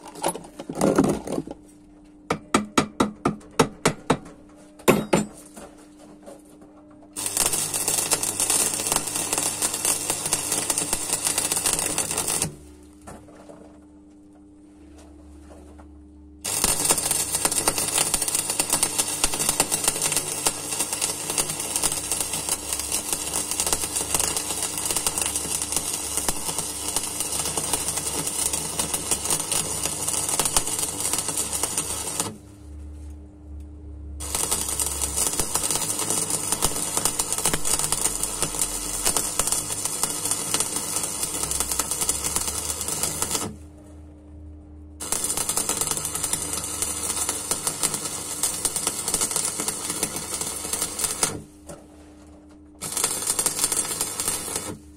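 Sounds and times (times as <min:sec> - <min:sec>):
low hum: 0:04.7 - 0:47.3
welding arc crackling and sizzling: 0:07.2 - 0:12.7, 0:16.4 - 0:32.4, 0:34.2 - 0:43.6, 0:45.0 - 0:51.6, 0:52.8 - 0:54.9.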